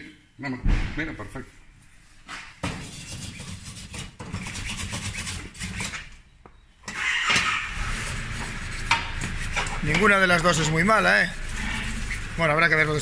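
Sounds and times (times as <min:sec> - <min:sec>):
wire brush scraping steel: 0:02.8 - 0:06.1, 0:07.0 - 0:13.0.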